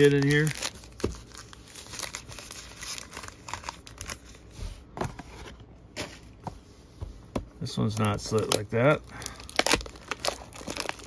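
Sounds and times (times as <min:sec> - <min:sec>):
plastic wrappers crinkling: 0:00.0 - 0:04.5, 0:07.8 - 0:11.0.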